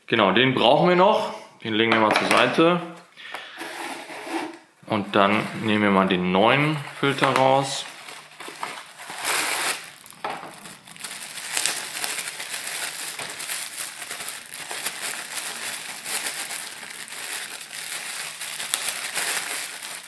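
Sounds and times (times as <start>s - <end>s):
plastic packaging crinkling: 6.5s - 20.0s.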